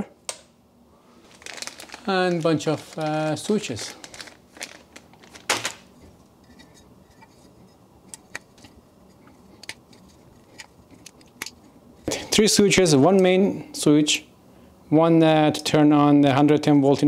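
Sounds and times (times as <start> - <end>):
plastic bag rustle: 1.1 - 6.2.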